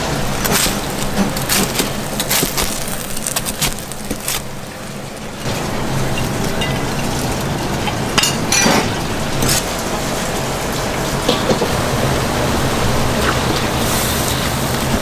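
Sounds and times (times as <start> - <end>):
knife and dishes clattering: 8.2 - 9.6
kitchen hiss: 11.0 - 15.0.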